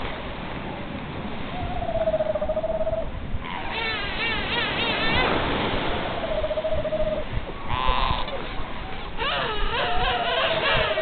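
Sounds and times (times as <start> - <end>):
seal pups calling: 6.0 - 11.0.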